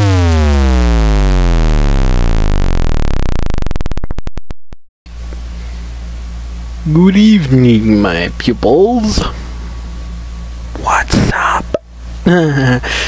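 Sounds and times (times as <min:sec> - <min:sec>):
electronic sweep falling in pitch: 0:00.0 - 0:04.6
steady hiss and hum: 0:05.1 - 0:13.0.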